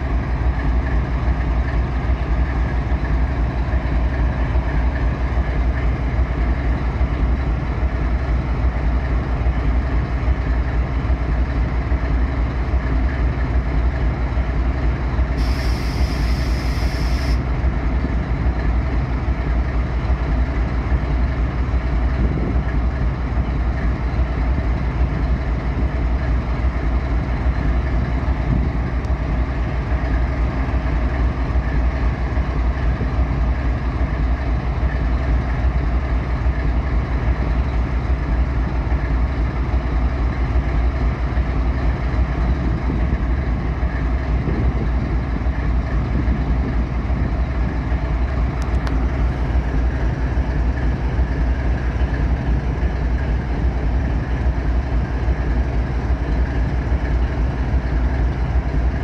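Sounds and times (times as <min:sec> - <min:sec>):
locomotive diesel engine idling: 0:00.0 - 0:59.0
compressed air hiss: 0:15.4 - 0:17.4.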